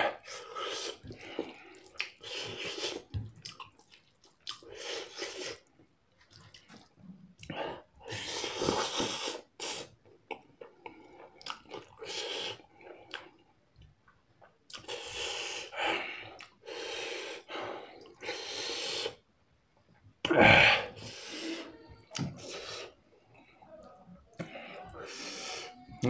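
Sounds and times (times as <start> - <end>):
wet chewing: 0.3 - 13.5, 14.4 - 16.6
man hissing breaths: 14.9 - 19.2, 24.4 - 26.0.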